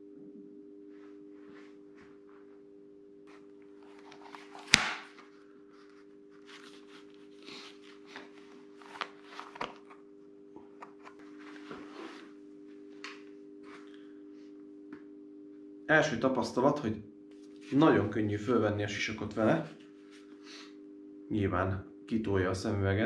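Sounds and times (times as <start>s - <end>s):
low hum: 0.0s - 22.8s
helmet handling rustles and clicks: 3.8s - 10.0s.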